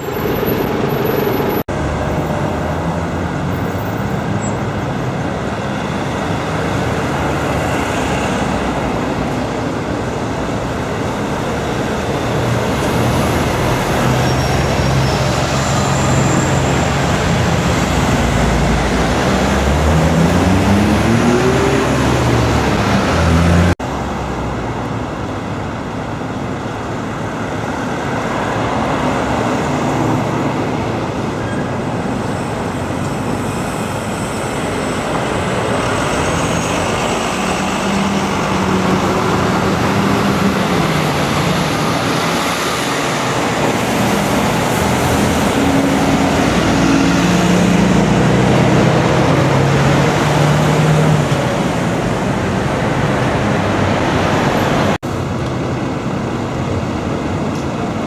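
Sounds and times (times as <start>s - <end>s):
road traffic passing: 0.0s - 58.0s
diesel engine accelerating: 5.8s - 25.1s, 33.6s - 58.0s.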